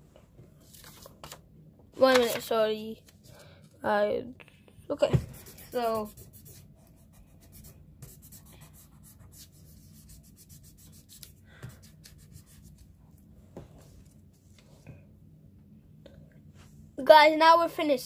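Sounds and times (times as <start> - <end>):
pencil scratching on paper: 5.2 - 12.8.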